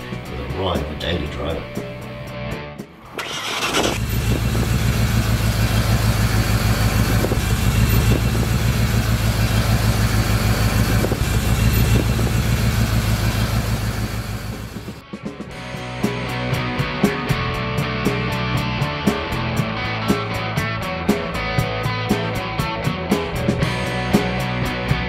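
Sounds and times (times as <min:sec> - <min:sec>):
pickup engine idling: 0:03.2 - 0:15.0.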